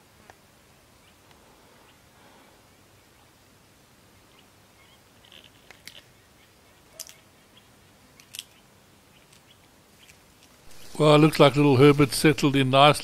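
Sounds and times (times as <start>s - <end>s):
monkey crunching food: 5.2s - 6.2s.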